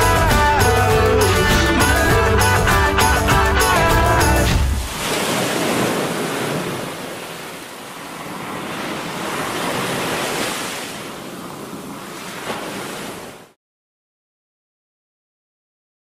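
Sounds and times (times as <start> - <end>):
sea waves breaking: 4.4 - 13.6.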